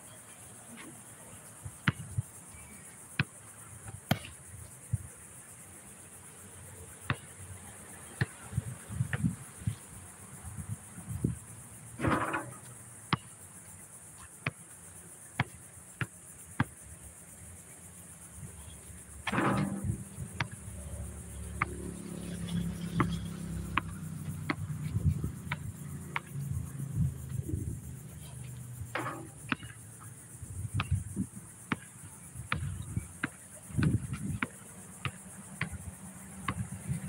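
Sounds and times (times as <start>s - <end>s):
high insect buzz: 0.0s - 37.0s
basketball hoop rattling: 12.0s - 12.7s, 19.3s - 20.4s, 28.9s - 29.7s
basketball bouncing on court: 23.8s - 26.4s, 28.9s - 29.8s, 31.7s - 31.9s.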